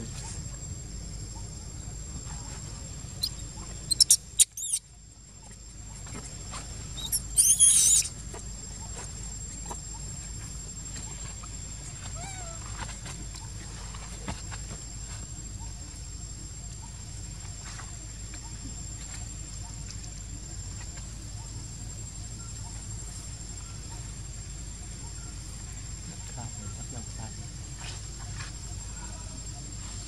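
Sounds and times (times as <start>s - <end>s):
young monkeys squeaking: 3.1s - 4.9s, 6.9s - 9.2s, 12.1s - 12.8s.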